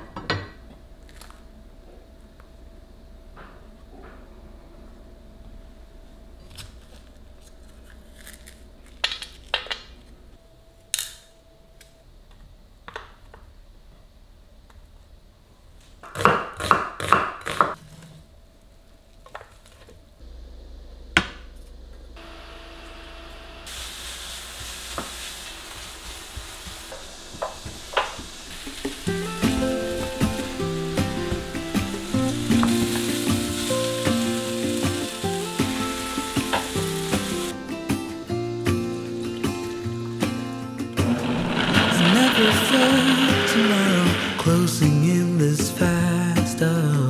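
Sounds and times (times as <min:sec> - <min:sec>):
vegetables sizzling in a pan: 0:22.2 - 0:37.6, 0:41.2 - 0:44.8.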